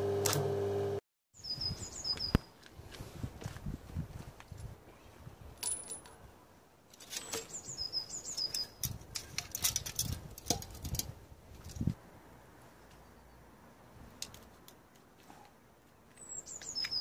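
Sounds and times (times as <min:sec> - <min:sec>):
bird chirping: 0:01.4 - 0:02.5, 0:07.2 - 0:08.8, 0:12.8 - 0:13.5, 0:16.1 - 0:17.0
metal tools clicking on motor: 0:08.4 - 0:11.1.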